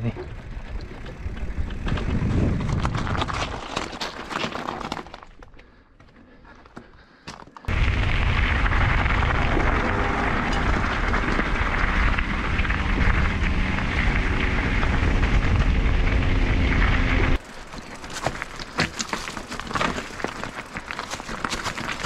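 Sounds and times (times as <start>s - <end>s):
wind buffeting microphone: 0.0s - 3.6s, 7.7s - 17.4s
bike rolling over rocky trail: 0.0s - 22.0s.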